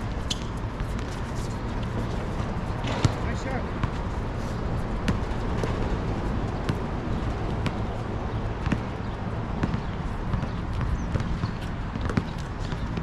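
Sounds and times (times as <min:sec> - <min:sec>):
basketball bouncing on court: 0:02.7 - 0:04.1, 0:05.0 - 0:13.0.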